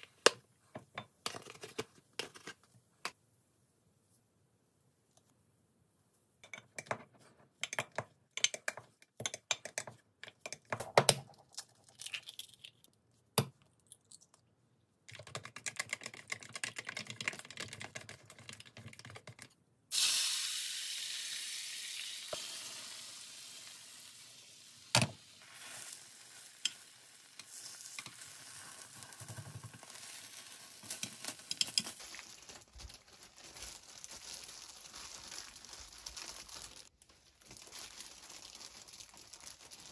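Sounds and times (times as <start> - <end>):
egg sizzling in frying pan: 19.9 - 32.1
plastic gloves crinkling: 25.4 - 39.9.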